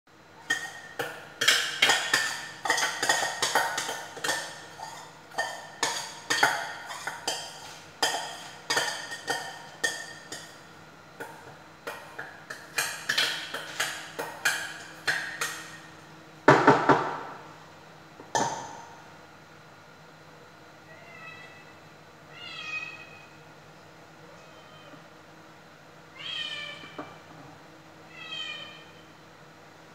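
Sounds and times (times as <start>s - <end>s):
cat meowing: 22.3s - 23.2s, 24.3s - 25.0s, 26.1s - 27.0s, 28.1s - 28.9s.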